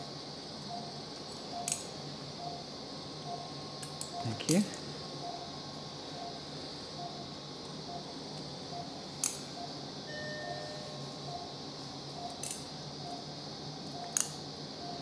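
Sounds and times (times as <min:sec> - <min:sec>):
monitor beeping: 0:00.6 - 0:01.8, 0:02.4 - 0:12.4, 0:13.0 - 0:13.3, 0:13.9 - 0:14.2, 0:14.8 - 0:15.0.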